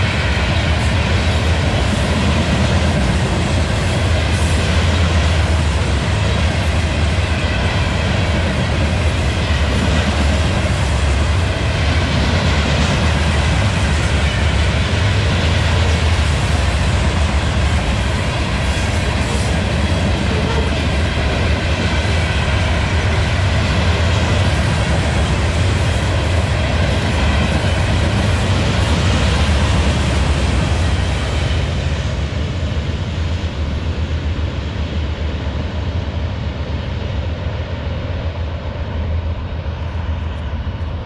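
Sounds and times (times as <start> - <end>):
freight train wheels on rails: 0.0 - 41.0
low train rumble: 0.0 - 41.0.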